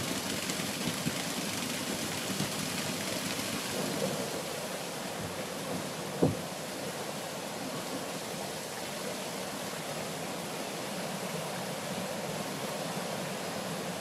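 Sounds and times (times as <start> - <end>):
stream water rushing: 0.0 - 14.0.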